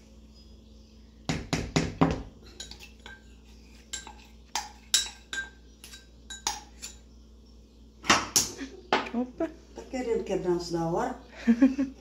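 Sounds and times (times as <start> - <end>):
kitchen utensils and dishes clinking: 2.4 - 7.1.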